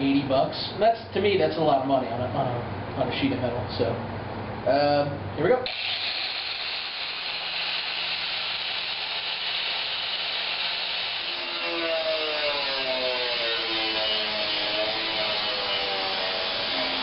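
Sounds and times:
angle grinder cutting sheet metal: 0:05.7 - 0:17.0.

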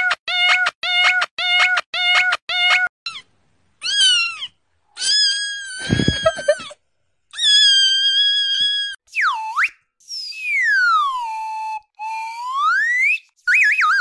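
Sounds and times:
cats meowing: 0:03.8 - 0:06.7.

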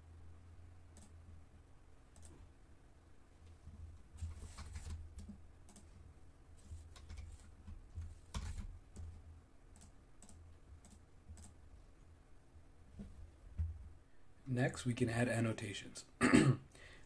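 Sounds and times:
low steady hum: 0:00.0 - 0:17.0
keyboard and mouse clicks: 0:00.9 - 0:01.2, 0:02.1 - 0:02.4, 0:04.2 - 0:05.9, 0:06.8 - 0:11.6.

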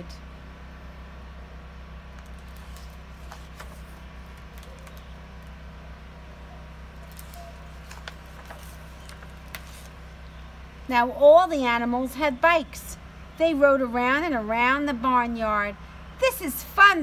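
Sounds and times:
steady low hum: 0:00.0 - 0:17.0
book page turning: 0:02.2 - 0:05.5, 0:07.0 - 0:10.0.

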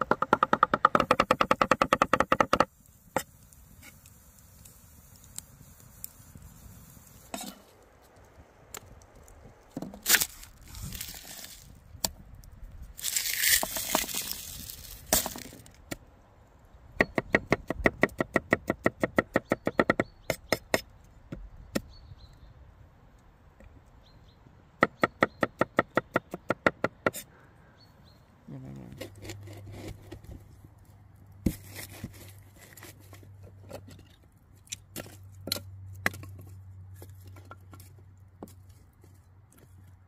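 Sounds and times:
cleaver chopping on wooden board: 0:00.0 - 0:02.7, 0:17.0 - 0:20.8
scraping on cutting board: 0:28.5 - 0:30.4.

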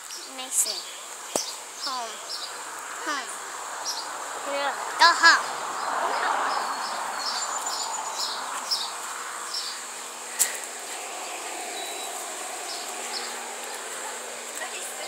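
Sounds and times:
high insect-like whine: 0:00.0 - 0:15.0
outdoor hiss: 0:00.0 - 0:15.0
small bird chirping: 0:03.8 - 0:14.0.

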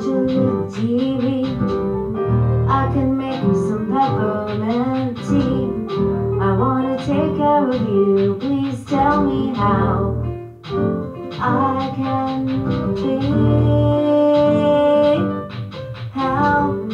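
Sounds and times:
person singing: 0:00.0 - 0:01.7, 0:06.4 - 0:10.2, 0:11.4 - 0:15.4, 0:16.2 - 0:16.9
low bass notes: 0:01.4 - 0:04.4, 0:05.2 - 0:07.4.

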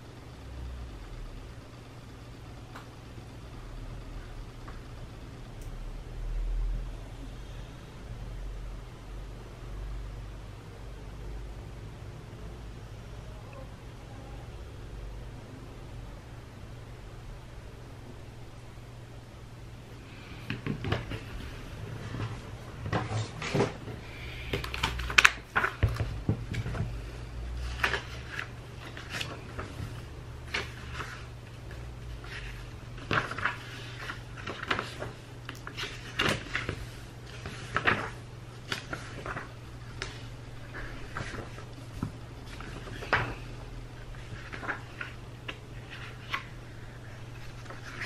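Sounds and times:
paper rustling: 0:20.2 - 0:48.0.

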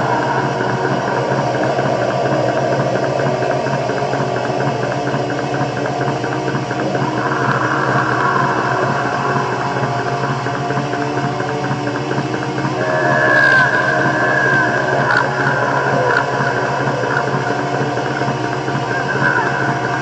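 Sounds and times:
distorted guitars: 0:00.0 - 0:20.0
fast driving drums: 0:00.0 - 0:20.0.

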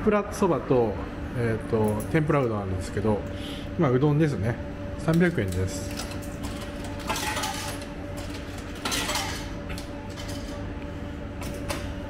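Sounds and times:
steady low hum: 0:00.0 - 0:12.0
coins clinking into vending machine: 0:05.1 - 0:10.6.

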